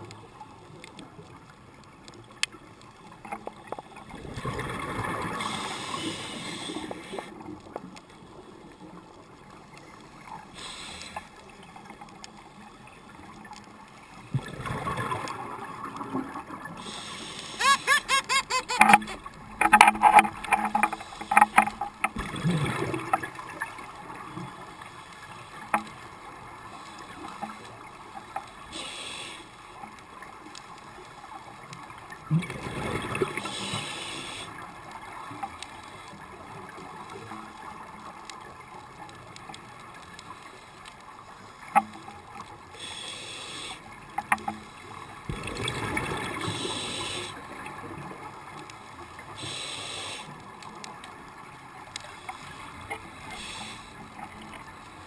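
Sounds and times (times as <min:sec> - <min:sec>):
burbling exhaled bubbles: 0:04.1 - 0:05.6, 0:14.3 - 0:16.6, 0:21.6 - 0:23.7, 0:32.3 - 0:33.4, 0:45.3 - 0:46.8
hissing regulator breaths: 0:05.4 - 0:07.4, 0:10.5 - 0:11.4, 0:16.8 - 0:18.2, 0:28.7 - 0:29.6, 0:33.4 - 0:34.6, 0:42.8 - 0:43.9, 0:46.4 - 0:47.4, 0:49.4 - 0:50.4, 0:52.1 - 0:54.1.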